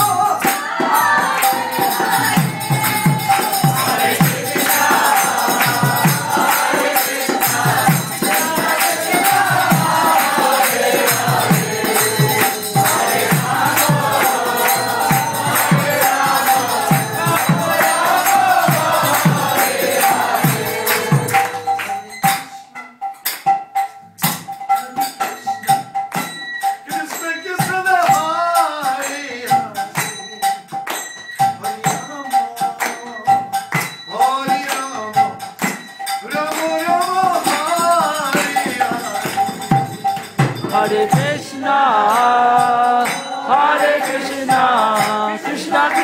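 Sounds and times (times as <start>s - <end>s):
group chanting: 0.0s - 22.2s, 37.0s - 46.0s
steady drum beat: 0.0s - 22.4s, 33.9s - 46.0s
hand cymbals jingling: 0.0s - 46.0s.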